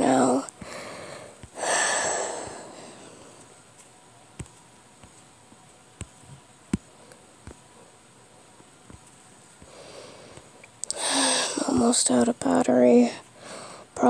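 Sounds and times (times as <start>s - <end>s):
taps on tablet screen: 4.4s - 5.2s
breathy exhale: 9.7s - 11.6s.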